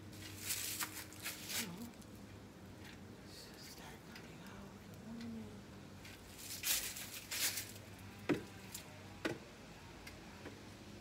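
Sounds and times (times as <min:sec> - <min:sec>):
rustling scuffs on dry leaves: 0:00.1 - 0:02.0, 0:06.2 - 0:08.0.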